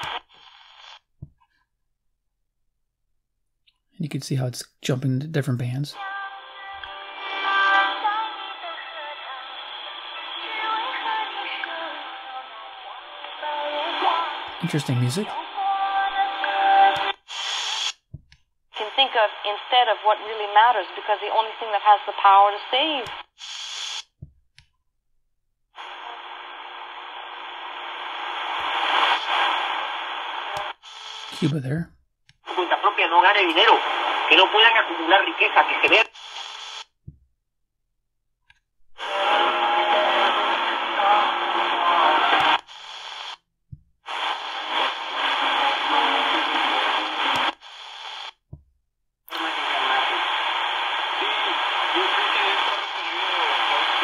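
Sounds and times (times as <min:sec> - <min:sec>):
radio static hiss: 0:00.0 - 0:01.0, 0:06.9 - 0:18.0, 0:18.8 - 0:24.1, 0:25.8 - 0:31.8, 0:32.5 - 0:36.9, 0:39.0 - 0:43.4, 0:44.1 - 0:48.4, 0:49.3 - 0:54.0
weak indistinct radio signals: 0:00.0 - 0:01.1, 0:04.1 - 0:18.0, 0:18.7 - 0:24.1, 0:25.8 - 0:36.9, 0:38.9 - 0:43.4, 0:44.1 - 0:48.4, 0:49.3 - 0:54.0.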